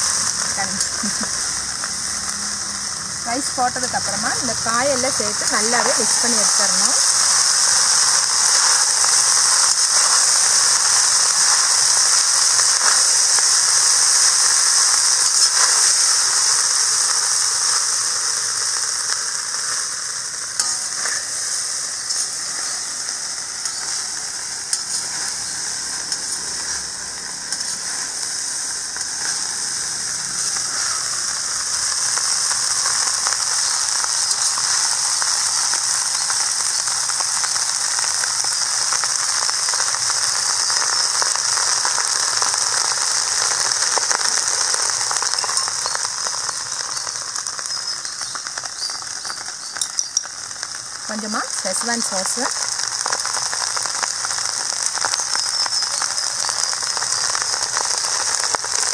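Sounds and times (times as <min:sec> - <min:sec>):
rice sizzling in a wok: 0:00.0 - 0:58.9
metal spatula stirring: 0:20.6 - 0:22.8, 0:24.7 - 0:26.9.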